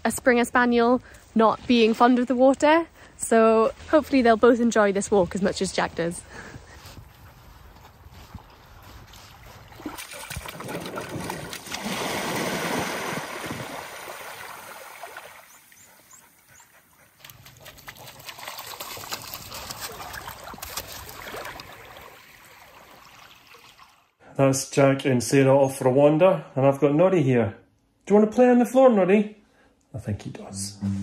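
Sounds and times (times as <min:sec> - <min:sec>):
dog splashing through water: 0:08.4 - 0:15.8, 0:17.2 - 0:24.0
water trickling: 0:17.2 - 0:24.1.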